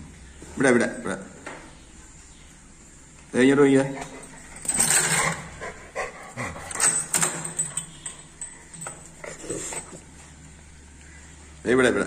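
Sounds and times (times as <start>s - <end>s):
metal chain clinking: 3.9s - 10.1s.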